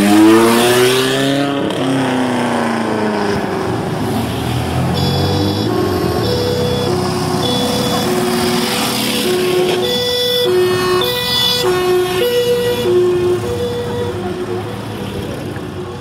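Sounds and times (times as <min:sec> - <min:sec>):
two-tone siren: 0:04.8 - 0:16.0.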